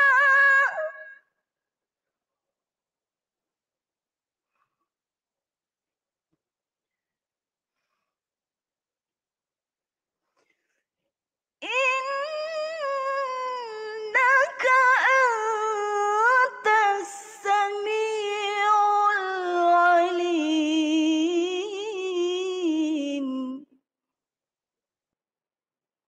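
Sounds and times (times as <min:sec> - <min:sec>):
woman reciting melodically: 0:00.0 - 0:01.2, 0:11.6 - 0:23.7.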